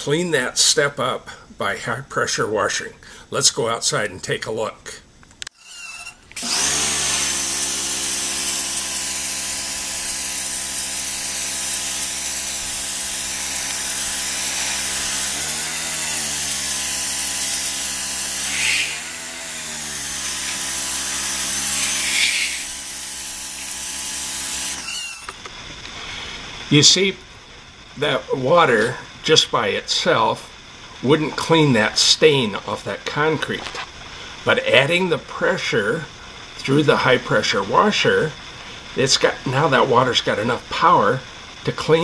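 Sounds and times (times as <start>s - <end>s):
pressure washer motor hum: 5.7s - 27.4s
water spray hissing on concrete: 7.3s - 15.7s.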